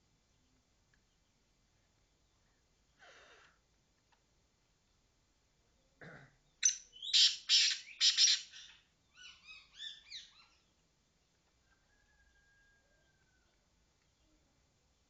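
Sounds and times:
francolin calling: 6.6s - 10.6s.

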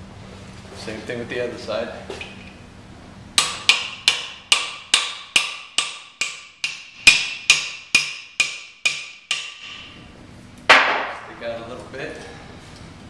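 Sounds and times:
hammer striking metal: 3.4s - 9.9s.

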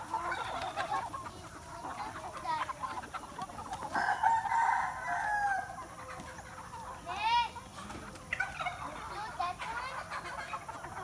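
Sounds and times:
hens clucking and calling: 0.0s - 11.0s
rooster crowing loudly: 4.0s - 5.7s.

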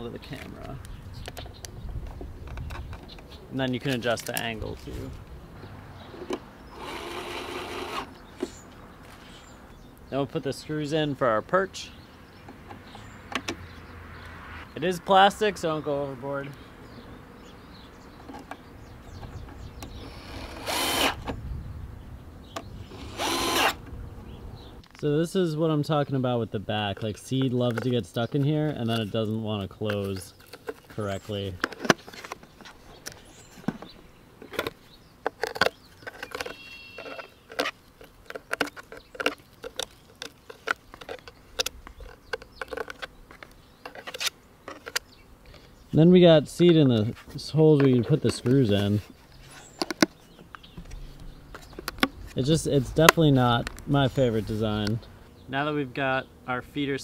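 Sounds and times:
power drill driving a screw: 6.7s - 8.1s, 20.0s - 21.3s, 22.9s - 23.8s.

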